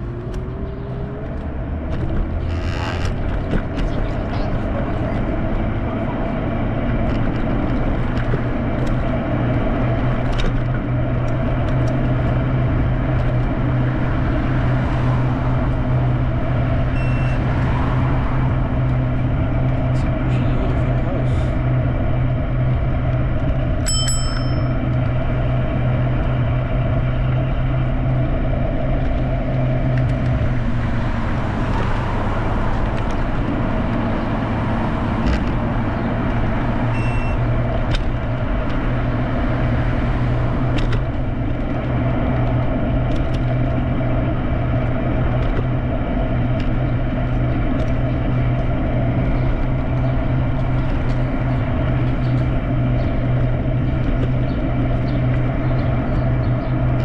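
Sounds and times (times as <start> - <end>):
low steady hum: 0.0 - 31.6, 32.7 - 57.0
bicycle road noise: 0.0 - 57.0
car passing: 12.1 - 23.3, 25.1 - 57.0.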